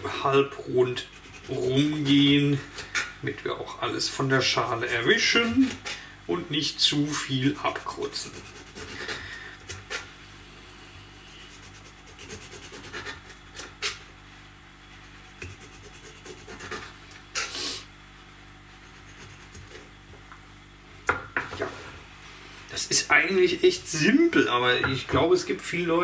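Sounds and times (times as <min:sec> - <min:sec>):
faint steady hum: 0:00.0 - 0:26.0.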